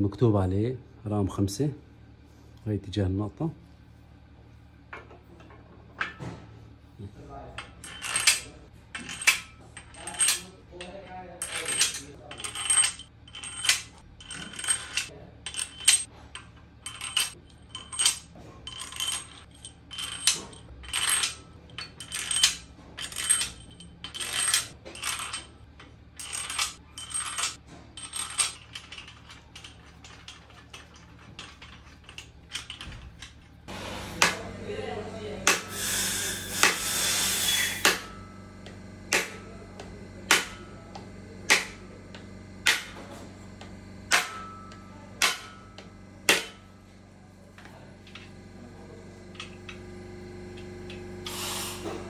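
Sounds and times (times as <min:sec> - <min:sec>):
steel bolts clinking: 0:07.6 - 0:33.5.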